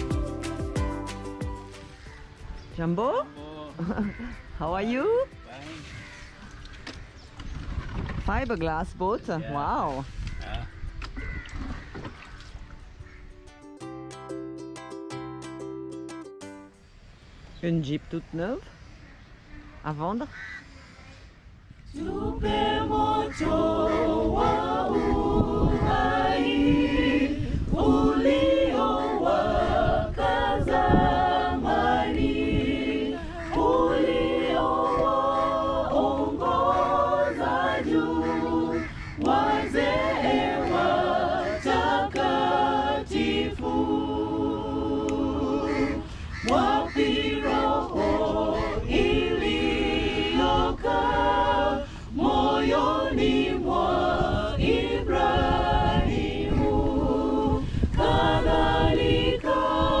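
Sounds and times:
mixed choir singing a cappella: 0:00.0 - 0:02.6, 0:21.8 - 1:00.0.

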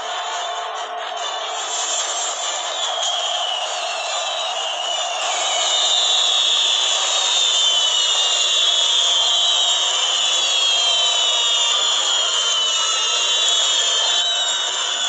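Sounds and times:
fireworks hissing and whistling: 0:00.0 - 0:15.0.

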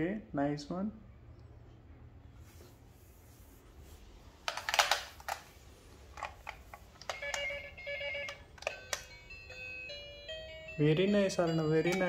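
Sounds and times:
plastic toy clicks and rattles: 0:04.5 - 0:05.5.

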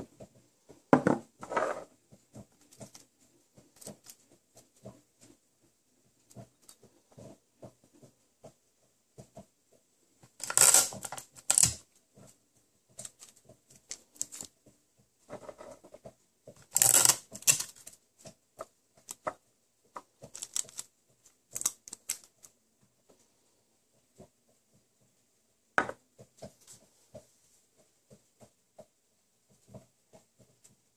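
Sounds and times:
sticky tape pulled and torn: 0:10.4 - 0:11.8, 0:16.6 - 0:17.8.

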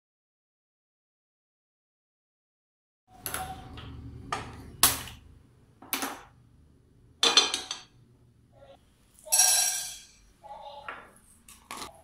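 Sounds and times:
metal pan clanking on stove: 0:09.3 - 0:10.2.

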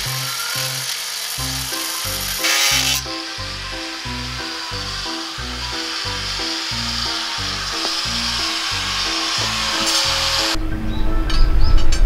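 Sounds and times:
angle grinder cutting steel: 0:00.0 - 0:10.6.

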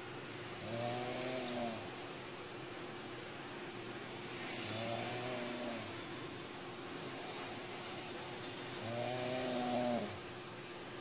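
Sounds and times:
person snoring: 0:00.4 - 0:02.0, 0:04.4 - 0:06.0, 0:08.7 - 0:10.2.

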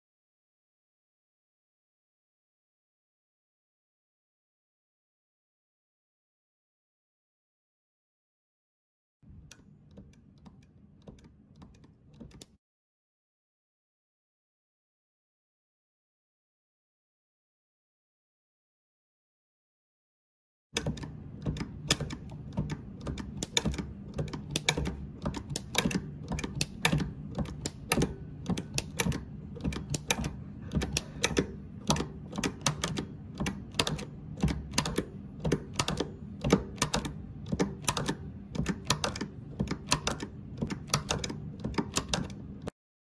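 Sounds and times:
metallic lever clicks: 0:20.8 - 0:42.7
steady low hum: 0:20.8 - 0:42.7.

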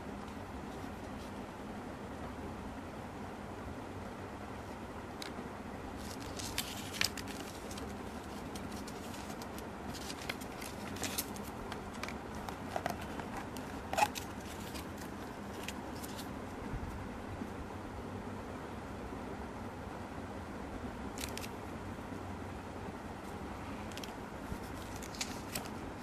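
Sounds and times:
plastic packaging crinkling: 0:06.0 - 0:16.3, 0:23.9 - 0:25.8.

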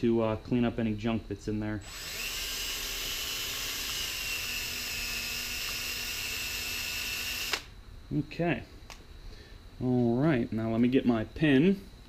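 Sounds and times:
power drill running: 0:01.8 - 0:07.7.

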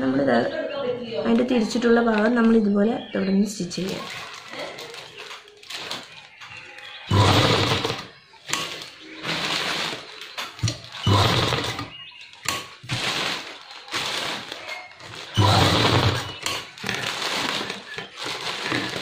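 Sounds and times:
sewing machine stitching: 0:07.1 - 0:08.1, 0:10.6 - 0:11.9, 0:15.4 - 0:16.5.

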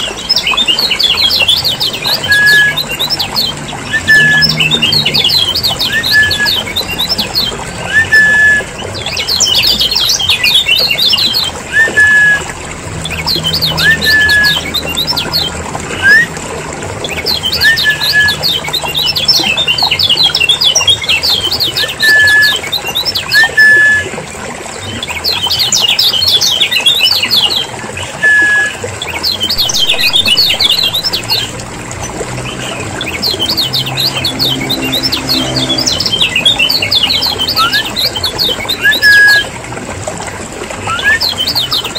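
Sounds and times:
short upslurred whistled notes: 0:03.9 - 0:04.7, 0:07.8 - 0:08.8, 0:11.7 - 0:12.5, 0:15.9 - 0:16.4, 0:23.3 - 0:24.2, 0:28.1 - 0:28.8, 0:29.5 - 0:31.6, 0:37.5 - 0:38.0, 0:38.8 - 0:39.5, 0:40.8 - 0:41.4
bird twittering chatter: 0:29.1 - 0:39.1.

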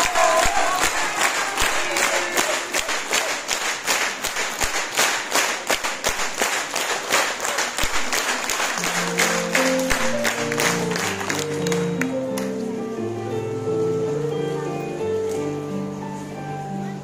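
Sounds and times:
audience applauding: 0:00.0 - 0:12.6
music: 0:07.8 - 0:17.0.

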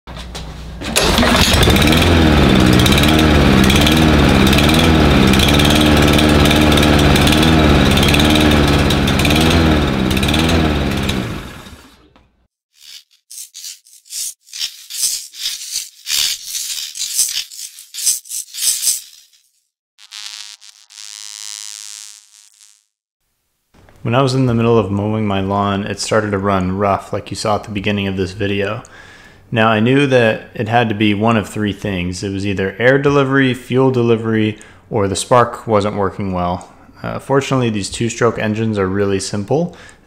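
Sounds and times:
lawn mower engine running rough: 0:00.7 - 0:12.1.

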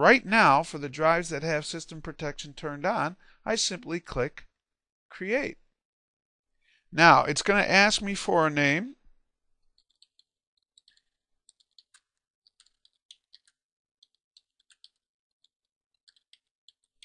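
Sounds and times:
computer keyboard typing: 0:09.6 - 0:17.0.

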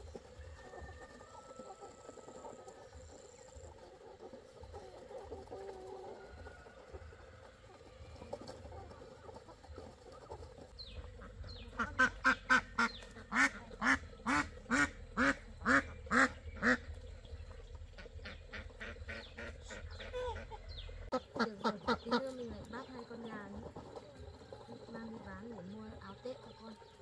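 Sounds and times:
duck quacking: 0:11.0 - 0:17.0, 0:17.9 - 0:24.0.

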